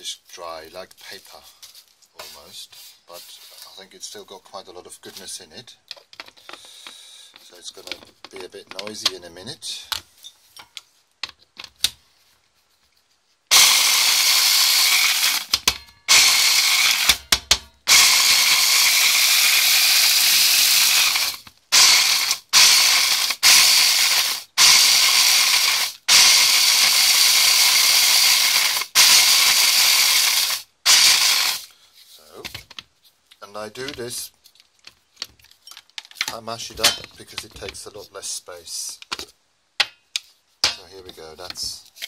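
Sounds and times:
electric chopper grinding: 13.5s - 17.2s, 17.9s - 31.6s.

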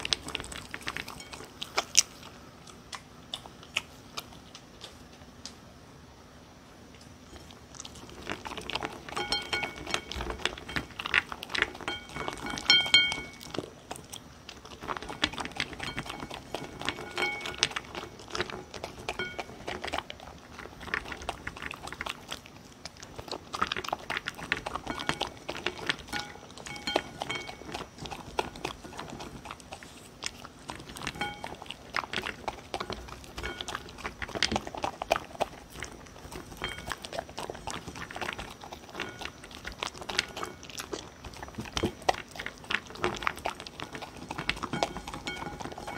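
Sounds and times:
dog chewing and crunching food: 0.0s - 5.8s, 6.6s - 45.9s
teeth clicking against bowl: 7.8s - 45.9s.

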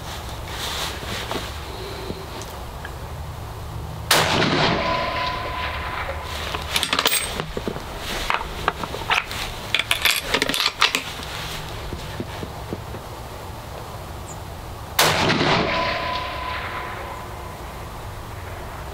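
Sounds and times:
rifle shot with echo: 4.1s - 6.5s, 15.0s - 17.8s.

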